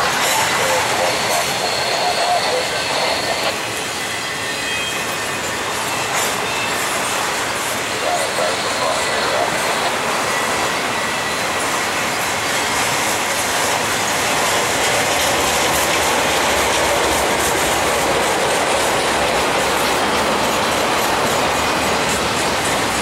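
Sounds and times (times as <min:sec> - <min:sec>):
steel wheels rumbling on rails: 0:00.0 - 0:23.0
wheels clacking over track joints: 0:11.6 - 0:23.0.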